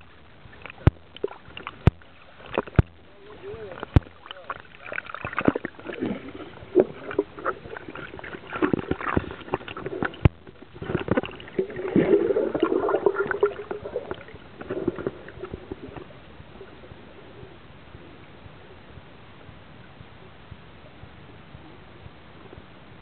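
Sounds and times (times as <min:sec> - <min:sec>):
water sloshing and gurgling: 0:00.0 - 0:18.0
sharp knocks and clicks: 0:00.7 - 0:03.1, 0:03.8 - 0:05.7.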